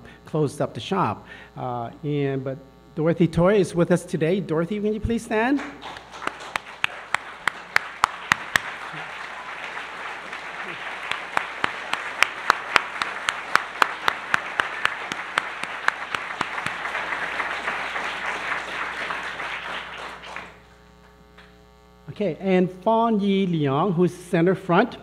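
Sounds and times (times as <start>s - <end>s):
audience applauding: 5.5s - 21.5s
close sharp claps: 5.5s - 21.6s.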